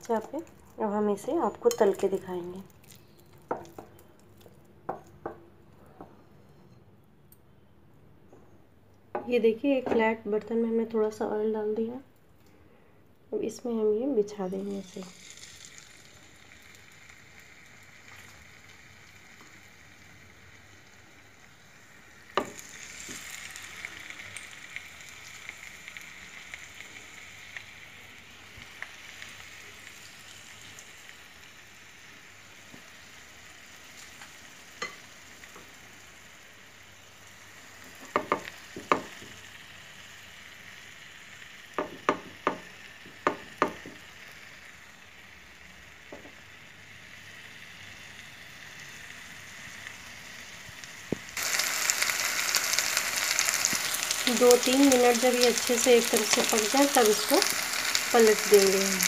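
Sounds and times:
meat sizzling in a pan: 14.5s - 59.0s.

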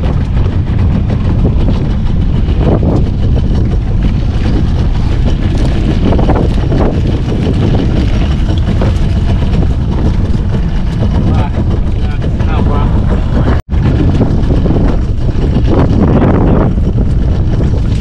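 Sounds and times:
boat engine rumble: 0.0s - 18.0s
wind buffeting microphone: 0.0s - 18.0s.

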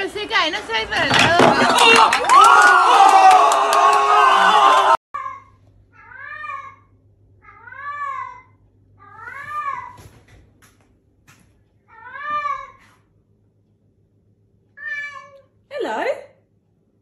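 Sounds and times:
cat meowing: 14.8s - 15.5s.

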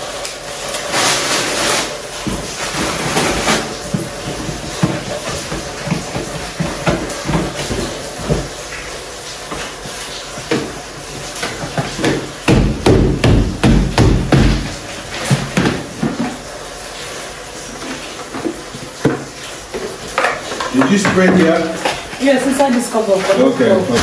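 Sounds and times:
kitchen containers knocking on counter: 2.2s - 8.5s, 11.4s - 16.4s, 18.4s - 22.0s.

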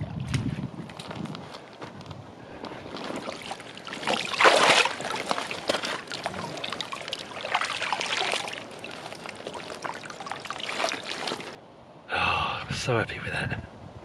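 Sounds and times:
water splashing and trickling: 2.8s - 11.6s.

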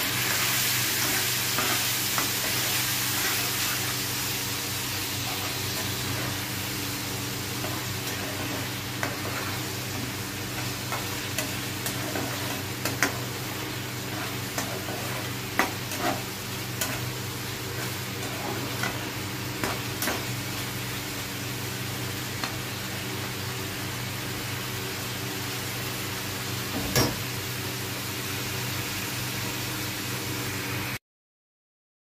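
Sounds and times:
chicken sizzling in a pan: 0.0s - 31.0s
spatula scraping and tapping pan: 7.6s - 13.3s, 14.0s - 17.1s.

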